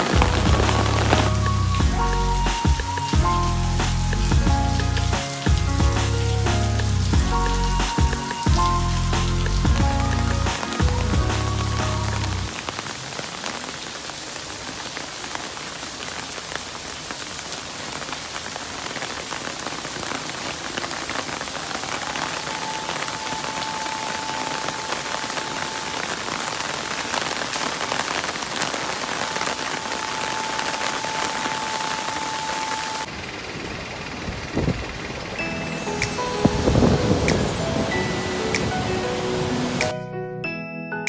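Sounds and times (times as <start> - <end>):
heavy rain pattering: 0.0 - 39.9
siren steady tone: 21.9 - 26.8, 29.2 - 33.1.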